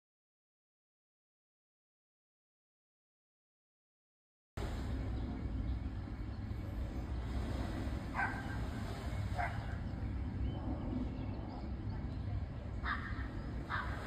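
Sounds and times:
low outdoor rumble: 4.6 - 14.0.

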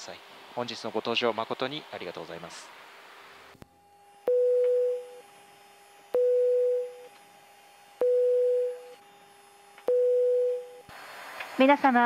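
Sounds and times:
faint steady hum: 2.7 - 12.0
electronic tone with click: 4.3 - 5.2.

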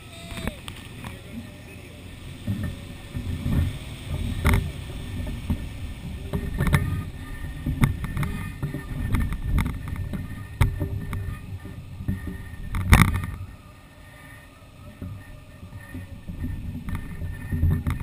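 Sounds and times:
wind buffeting microphone: 0.0 - 18.0
sharp clicks and knocks: 2.4 - 13.5, 14.9 - 18.0.

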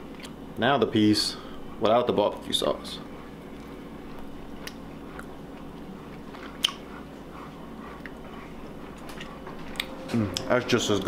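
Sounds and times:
steady low hum: 0.0 - 11.0
person chewing: 0.1 - 0.4, 3.2 - 10.5.

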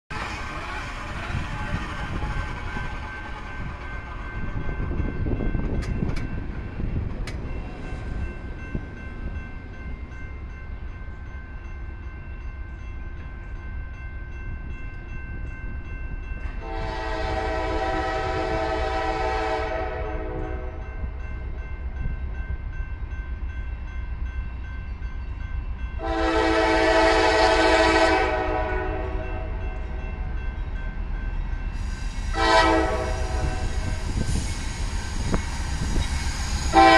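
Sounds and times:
locomotive air horn blasts: 16.6 - 20.8, 26.0 - 29.6, 32.2 - 34.0, 36.7 - 36.9.

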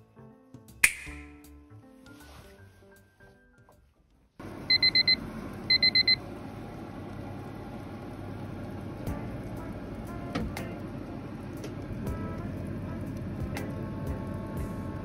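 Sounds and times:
background music: 0.0 - 4.4, 9.0 - 15.0
oven running noise: 4.4 - 15.0
oven quick high beeps: 4.7 - 6.2.

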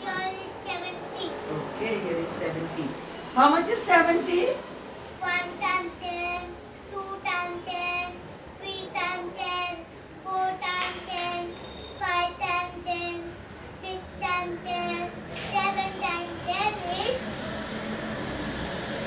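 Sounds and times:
child chanting sing-song syllables: 0.0 - 1.5, 5.2 - 17.4.

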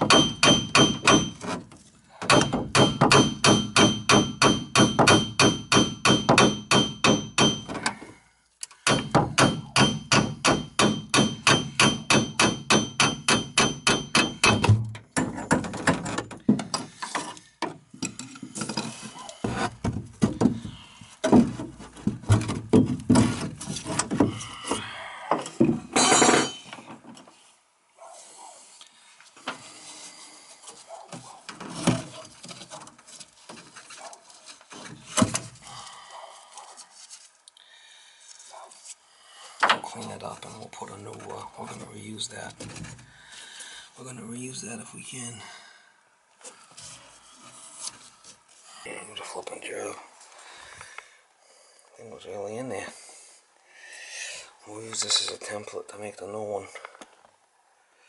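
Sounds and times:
metal knocking and scraping: 0.0 - 8.1, 8.8 - 24.5, 25.4 - 27.3, 31.2 - 34.0.

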